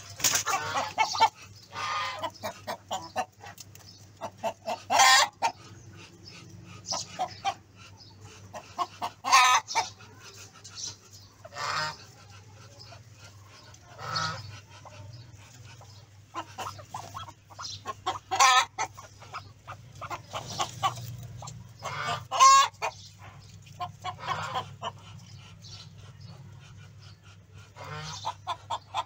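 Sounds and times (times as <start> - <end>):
fowl calling harshly: 4.6 - 5.6, 11.4 - 12.2, 13.9 - 15.0, 15.8 - 21.0, 21.8 - 23.0.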